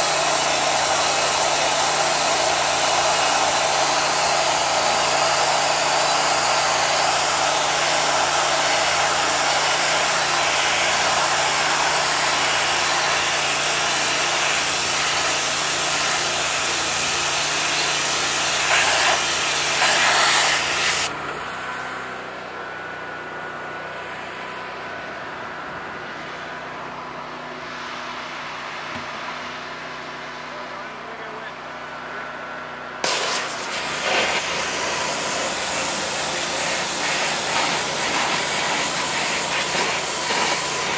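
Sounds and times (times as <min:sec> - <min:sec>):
pressure washer spray hissing: 0:00.0 - 0:21.1, 0:33.0 - 0:40.9
steady machine hum: 0:00.0 - 0:40.9.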